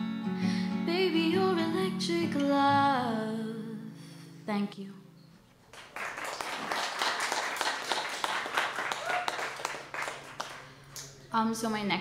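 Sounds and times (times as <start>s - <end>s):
crowd clapping: 5.7s - 11.2s.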